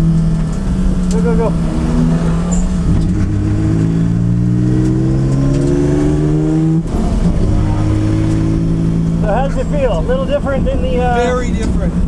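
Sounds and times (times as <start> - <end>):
race car engine pulling hard: 0.0 - 12.0.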